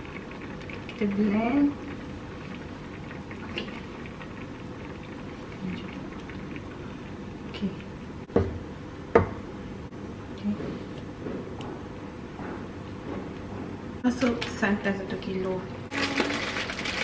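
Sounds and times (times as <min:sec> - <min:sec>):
food bubbling in a frying pan: 0:00.0 - 0:08.3.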